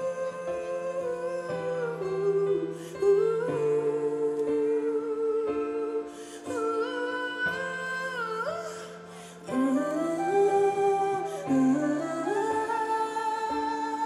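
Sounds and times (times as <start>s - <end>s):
gliding melody line: 9.5s - 14.0s.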